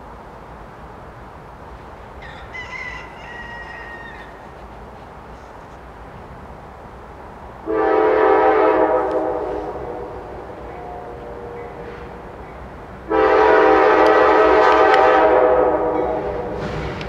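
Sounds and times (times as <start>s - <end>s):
locomotive air horn chord: 7.6s - 12.4s, 13.1s - 17.0s.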